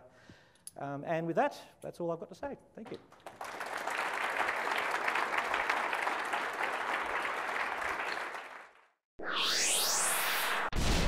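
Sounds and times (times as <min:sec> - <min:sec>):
audience applauding: 0:03.1 - 0:09.0.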